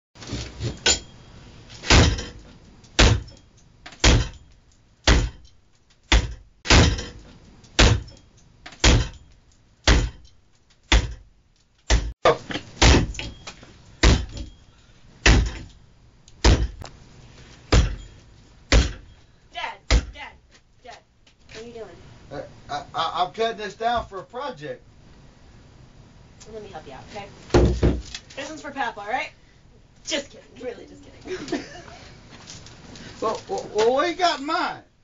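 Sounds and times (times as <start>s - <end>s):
hatchet chopping wood: 3.0s - 3.3s, 5.0s - 5.4s, 7.8s - 8.1s, 8.7s - 9.2s, 9.8s - 10.2s, 10.9s - 11.2s, 11.9s - 12.2s, 12.8s - 13.3s, 14.0s - 14.5s, 15.2s - 15.7s, 16.4s - 16.8s, 17.7s - 18.0s, 18.7s - 19.1s, 19.9s - 20.2s.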